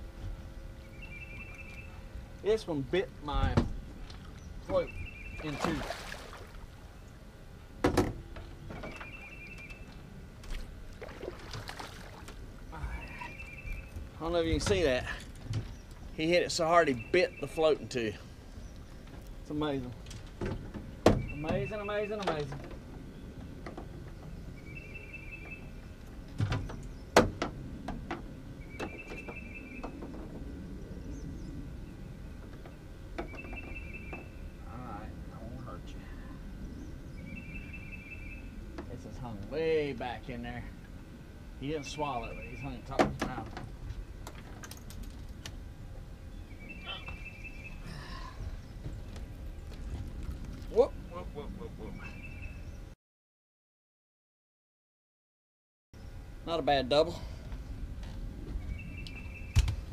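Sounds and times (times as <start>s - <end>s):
knocks against boat: 7.8s - 9.1s.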